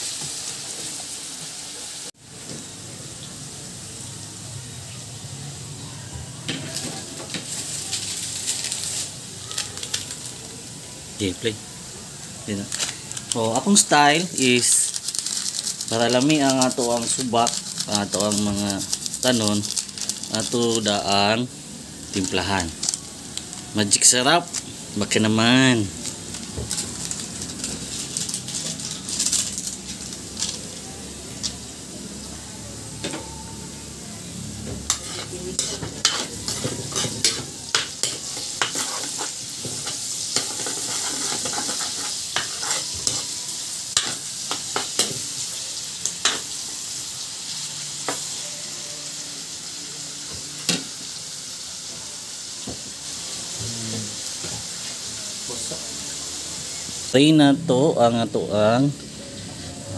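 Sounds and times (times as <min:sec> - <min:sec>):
vegetables sizzling in a wok: 0:00.0 - 0:59.9
metal spatula scraping a pan: 0:34.9 - 0:43.3.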